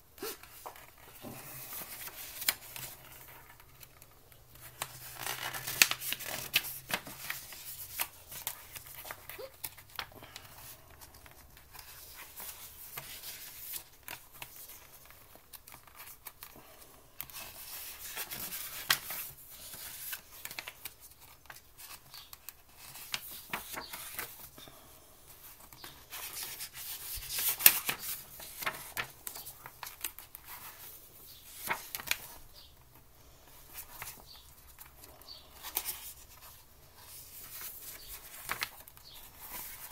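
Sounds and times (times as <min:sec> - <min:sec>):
paper pages rustling and flicking: 0:00.2 - 0:16.6, 0:17.2 - 0:24.6, 0:25.3 - 0:39.9.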